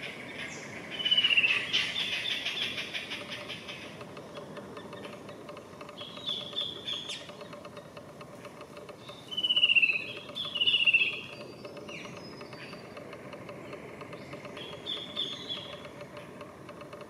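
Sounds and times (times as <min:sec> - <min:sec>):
bird trilling: 0:00.0 - 0:04.0, 0:04.8 - 0:07.5, 0:09.0 - 0:13.0, 0:13.6 - 0:15.9
faint background hum: 0:00.0 - 0:17.0
faint high bird chirps: 0:06.0 - 0:07.4, 0:09.0 - 0:13.0, 0:13.7 - 0:15.9.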